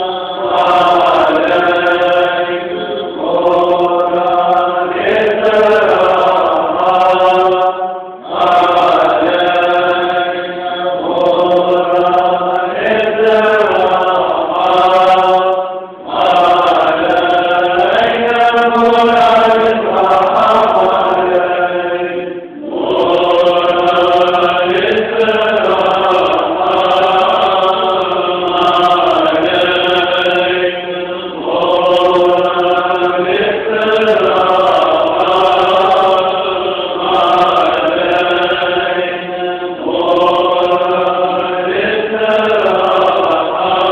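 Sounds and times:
men chanting together: 0.0s - 43.9s.

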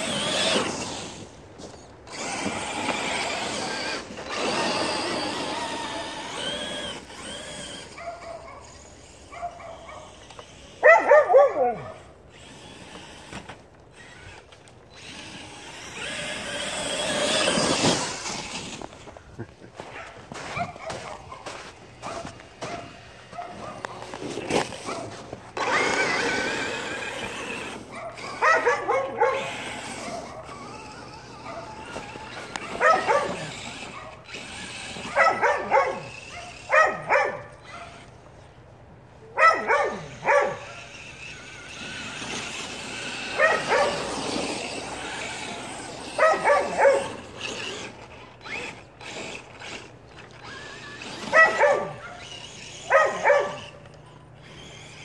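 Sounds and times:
dogs barking: 7.5s - 12.1s, 19.9s - 24.2s, 24.8s - 25.2s, 27.8s - 30.7s, 31.3s - 34.4s, 35.0s - 38.1s, 39.3s - 41.0s, 43.3s - 44.2s, 46.1s - 47.6s, 51.0s - 53.8s.

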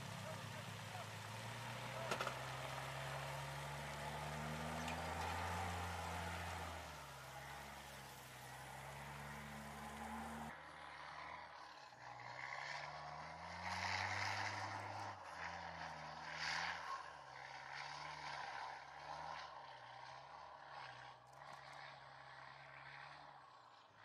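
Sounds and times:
diesel engine running: 0.0s - 15.9s.

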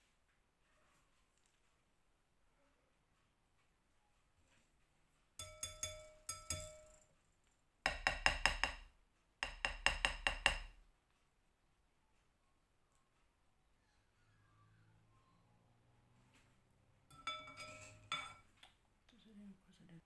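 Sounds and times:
utensils clinking on mixing bowls: 5.4s - 7.1s, 17.1s - 18.6s.

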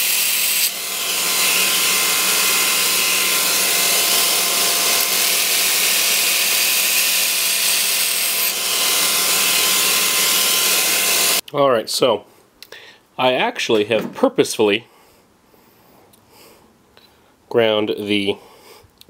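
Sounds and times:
belt grinder grinding steel: 0.0s - 11.4s
machine hum: 0.0s - 11.4s.

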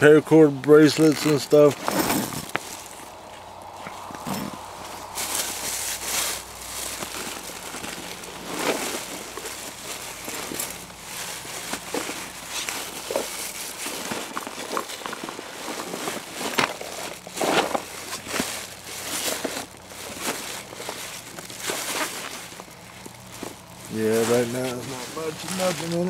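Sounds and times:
bag rustling and crinkling: 0.8s - 26.0s.

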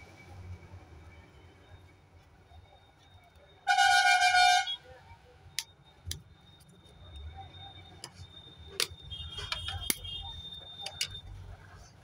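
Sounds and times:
vehicle horn honk: 3.7s - 4.8s.

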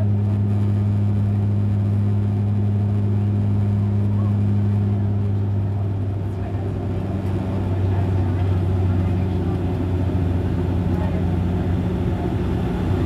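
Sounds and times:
propeller cabin drone: 0.0s - 13.0s.

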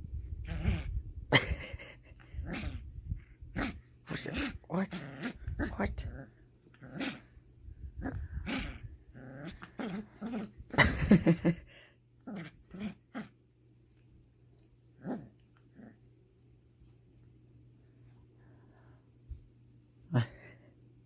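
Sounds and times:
puppy growling: 0.2s - 1.6s, 2.2s - 14.0s, 14.9s - 16.2s.

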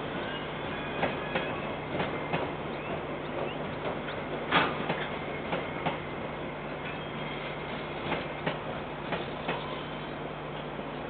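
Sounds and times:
freight train rumbling: 0.0s - 11.0s
wheels clicking over rail joints: 1.0s - 6.0s.

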